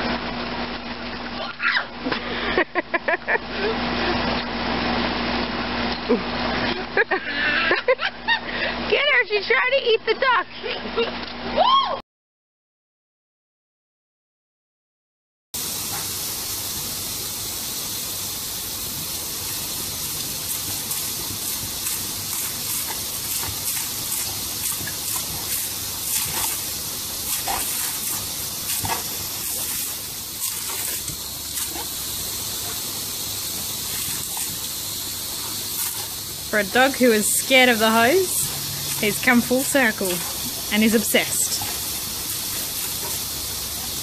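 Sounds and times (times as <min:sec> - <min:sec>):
garden hose spraying water: 0:15.6 - 0:44.0
water splashes: 0:18.5 - 0:44.0.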